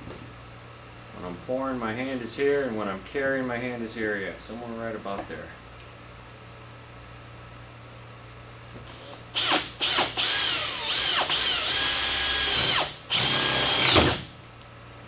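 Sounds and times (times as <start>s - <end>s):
cordless drill boring through plastic: 8.9s - 14.3s.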